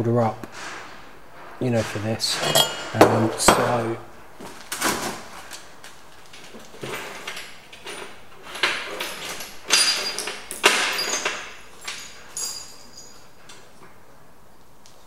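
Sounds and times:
handling knocks and scrapes: 0:00.5 - 0:03.8.

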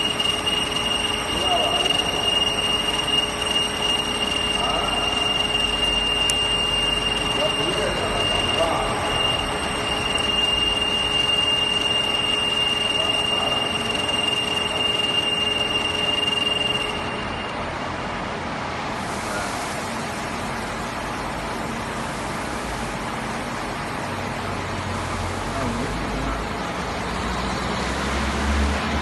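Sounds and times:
milling machine whine: 0:00.0 - 0:29.0
coolant spraying hiss: 0:19.0 - 0:24.2.

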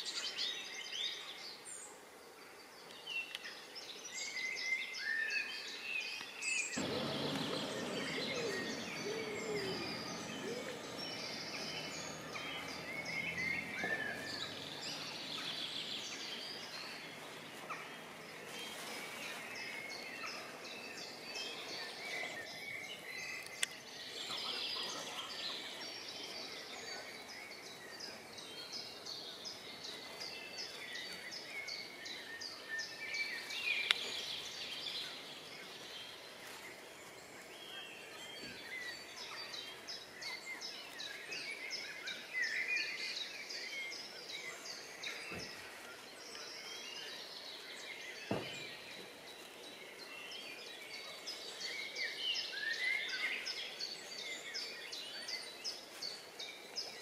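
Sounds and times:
outdoor background hiss: 0:00.0 - 0:57.0
songbirds chirping and trilling: 0:00.0 - 0:57.0
low rushing noise: 0:06.8 - 0:18.3.

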